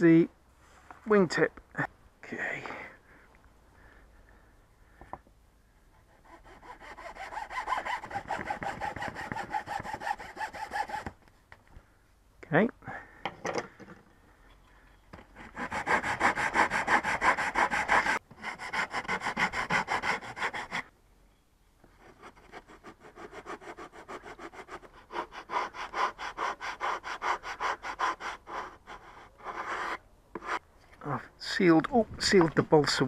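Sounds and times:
sanding block rubbing wood: 6.3s - 11.1s, 15.5s - 20.8s.

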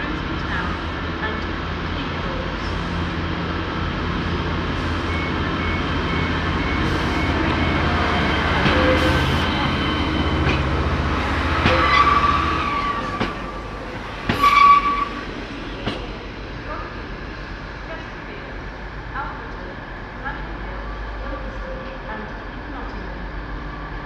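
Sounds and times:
diesel train engine drone: 0.0s - 24.0s
train wheel squeal: 11.6s - 13.5s.

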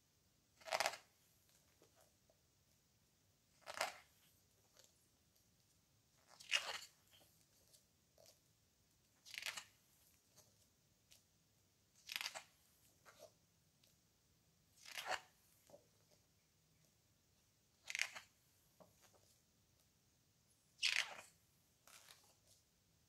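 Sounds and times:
book pages turning: 3.6s - 5.0s, 6.2s - 8.4s, 9.2s - 10.4s, 12.0s - 13.4s, 14.8s - 16.2s, 17.8s - 19.4s, 20.8s - 22.6s.

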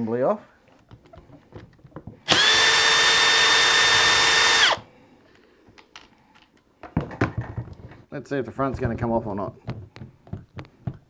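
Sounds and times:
cordless drill whining: 2.2s - 4.9s.

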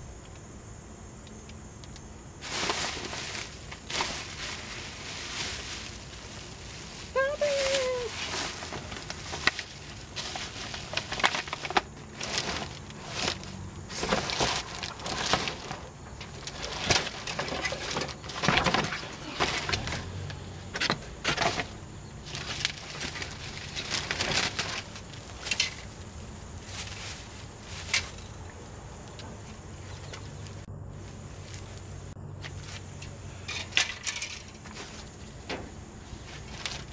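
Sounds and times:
plastic bags rustling: 2.4s - 20.2s, 21.1s - 28.3s, 32.5s - 36.9s.

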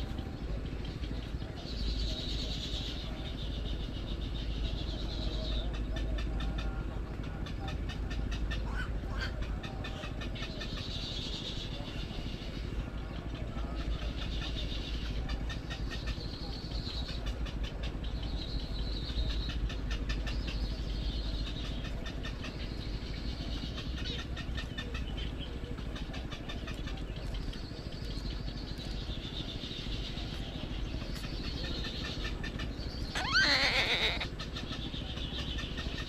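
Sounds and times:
chicks clicking chatter: 0.0s - 36.0s
high thin bird call: 33.0s - 34.3s.

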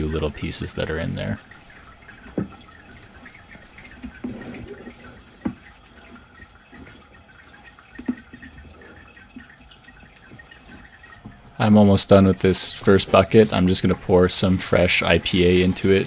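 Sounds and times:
paper towel rubbing plastic bin: 2.9s - 6.2s, 12.2s - 16.0s.

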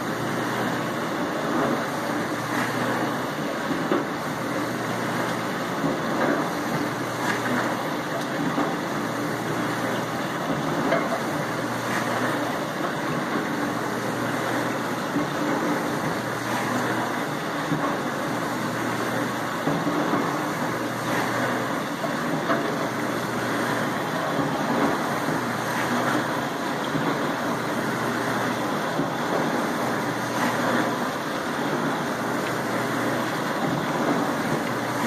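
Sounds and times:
pump motor hum: 0.0s - 35.0s
water spraying inside dishwasher: 0.0s - 35.0s.

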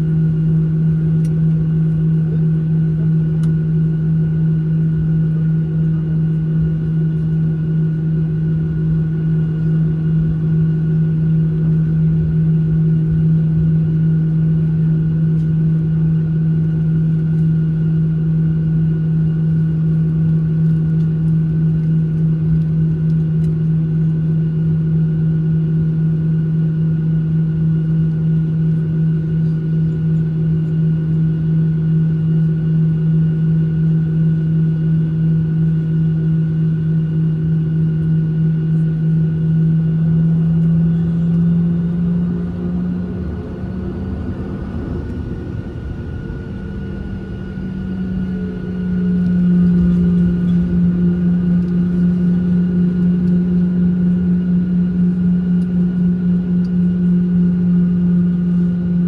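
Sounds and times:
airplane cabin drone: 0.0s - 59.0s.

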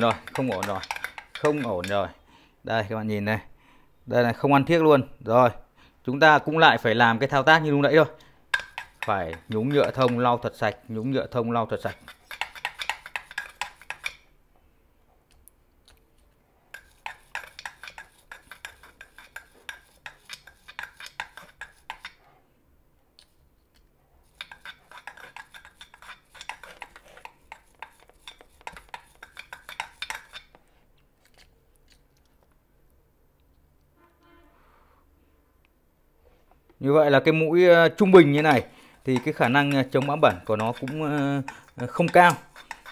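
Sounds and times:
metal scratching on scouring pad: 0.0s - 2.0s, 8.5s - 10.4s, 11.8s - 14.2s, 16.7s - 22.1s, 24.3s - 30.6s, 38.0s - 42.9s.

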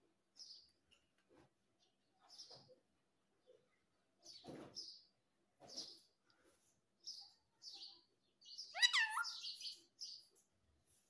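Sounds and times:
parakeet chirping and chattering: 7.0s - 10.4s.

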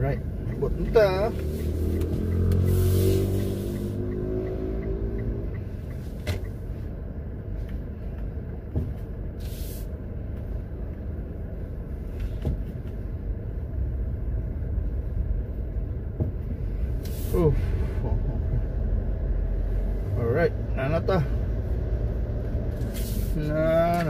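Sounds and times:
car engine and road rumble: 0.0s - 24.0s
short hiss: 9.4s - 9.9s.

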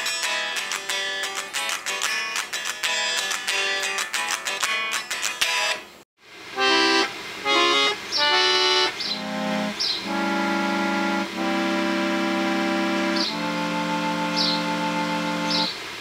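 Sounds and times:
strummed guitar music: 0.0s - 6.0s, 6.6s - 15.7s
reed organ chords: 6.6s - 15.8s.

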